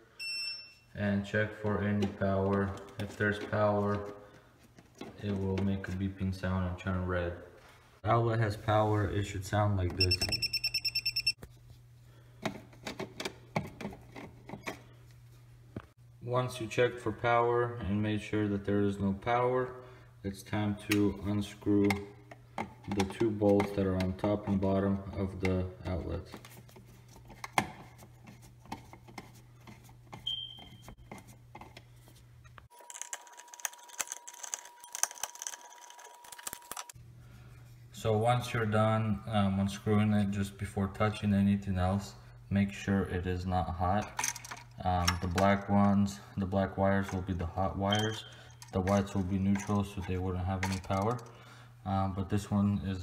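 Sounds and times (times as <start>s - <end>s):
voltage tester beeping rapidly: 10.0s - 11.4s.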